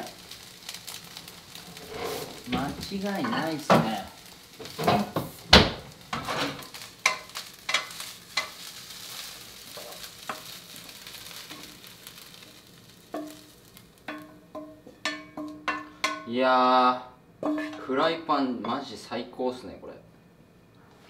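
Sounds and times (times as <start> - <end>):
food sizzling in a frying pan: 0.0 - 19.2
utensil scraping a pan: 0.9 - 4.0, 6.1 - 12.4.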